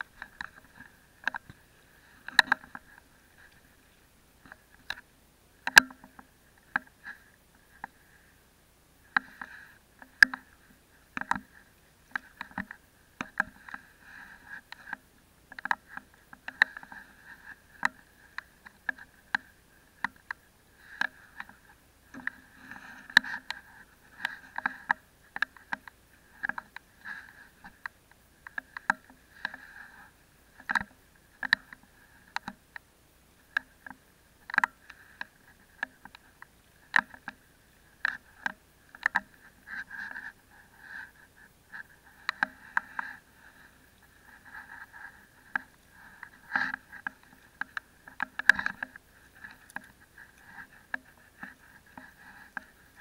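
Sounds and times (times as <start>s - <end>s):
sharp clicks and knocks: 2.2s - 3.6s, 5.6s - 7.0s, 9.1s - 13.8s, 33.5s - 37.4s, 38.0s - 39.4s.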